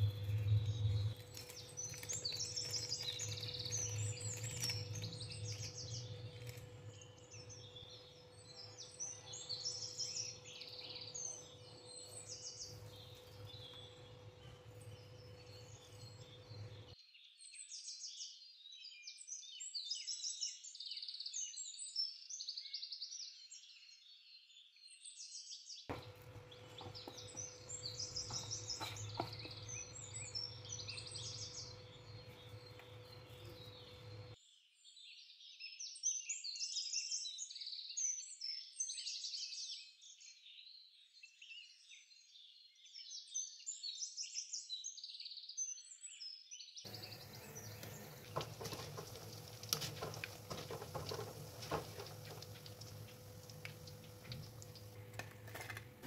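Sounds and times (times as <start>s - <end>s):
low steady hum: 0.0s - 17.0s, 25.9s - 34.4s, 46.9s - 56.0s
oil sizzling deep-frying: 0.0s - 17.0s, 25.9s - 34.4s, 46.9s - 56.0s
birds singing: 0.0s - 21.7s, 25.9s - 35.2s, 40.5s - 55.1s.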